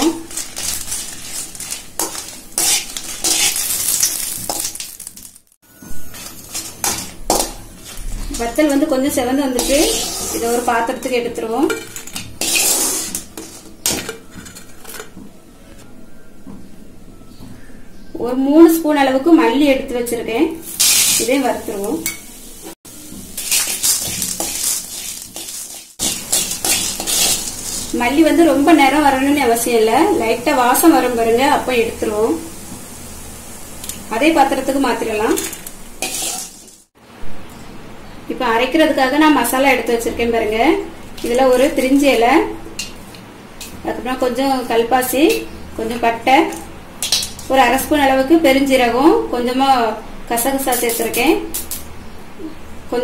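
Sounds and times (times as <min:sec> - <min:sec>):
metal spoon scraping a pan: 0:00.0 - 0:04.8, 0:06.1 - 0:15.1, 0:23.3 - 0:29.4, 0:35.3 - 0:36.8
chillies sizzling in oil: 0:00.0 - 0:15.0, 0:19.0 - 0:37.0, 0:38.3 - 0:52.1.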